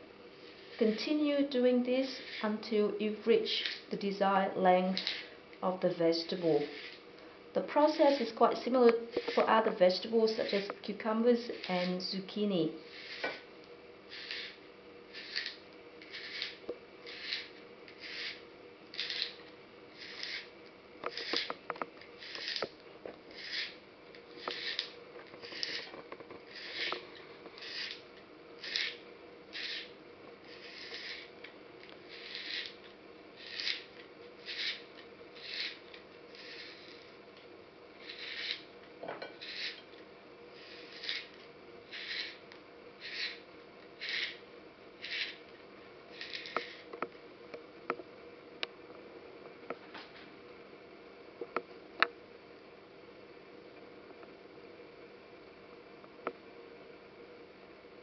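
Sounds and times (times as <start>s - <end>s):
spiral slicer rasping through carrot: 2.0s - 2.6s, 3.5s - 3.9s, 4.9s - 5.3s, 6.1s - 7.0s, 7.8s - 10.7s, 11.3s - 12.0s, 12.8s - 13.4s, 14.1s - 21.6s, 22.2s - 22.7s, 23.3s - 28.0s, 28.6s - 31.4s, 32.1s - 32.8s, 33.4s - 37.1s, 38.0s - 38.7s, 39.4s - 39.9s, 40.5s - 42.4s, 43.0s - 43.4s, 44.0s - 44.4s, 45.0s - 45.4s, 46.1s - 46.9s.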